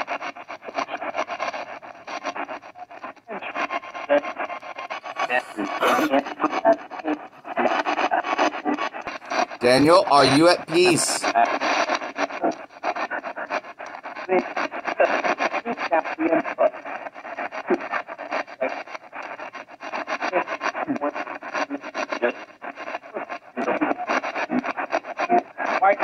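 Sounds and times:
chopped radio static: 0:05.1 - 0:06.2, 0:09.3 - 0:11.3
clipped broadcast voice fragments: 0:05.1 - 0:06.3, 0:09.2 - 0:11.4.

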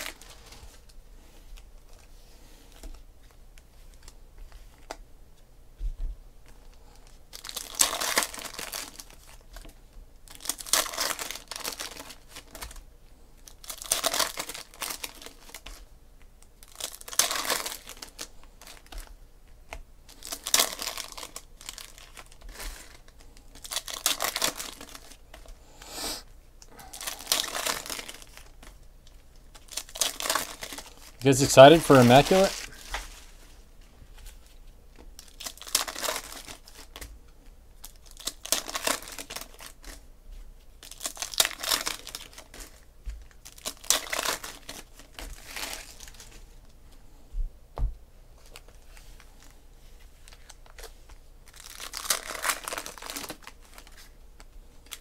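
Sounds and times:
foil wrappers crinkling and tearing: 0:00.0 - 0:00.9, 0:07.0 - 0:12.8, 0:13.4 - 0:19.2, 0:20.0 - 0:25.6, 0:26.7 - 0:33.6, 0:34.2 - 0:37.1, 0:37.8 - 0:40.0, 0:40.8 - 0:46.5, 0:48.4 - 0:55.0.

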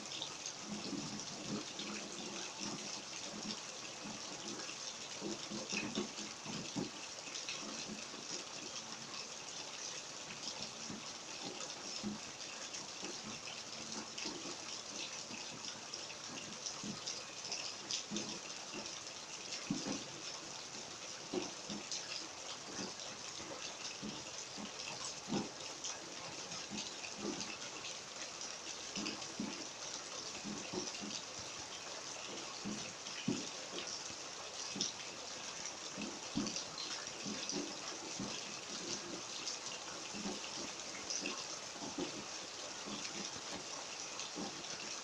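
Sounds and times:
low taps and splashes: 0:00.0 - 0:45.0
steady rain hiss: 0:00.0 - 0:45.0.

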